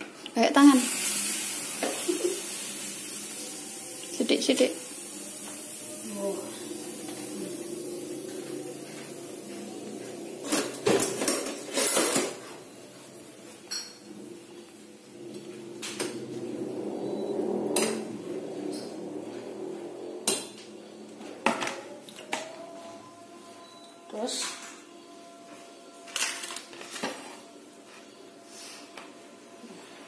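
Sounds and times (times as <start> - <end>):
metal pot and kitchenware clinking: 10.4 - 12.6, 13.7 - 14.1
steady low hum: 14.1 - 23.3.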